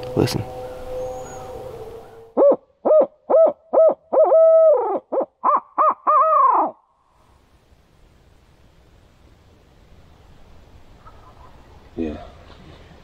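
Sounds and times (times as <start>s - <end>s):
owl hooting: 0.1s - 6.8s.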